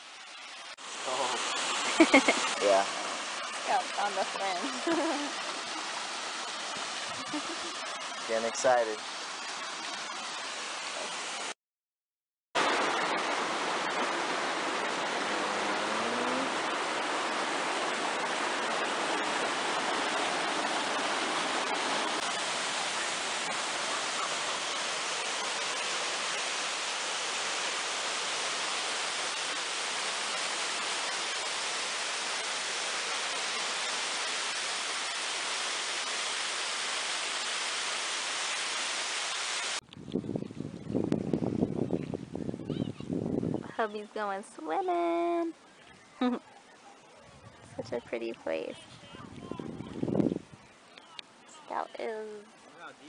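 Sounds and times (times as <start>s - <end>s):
waterfall roaring: 0.0s - 11.5s, 12.6s - 39.8s.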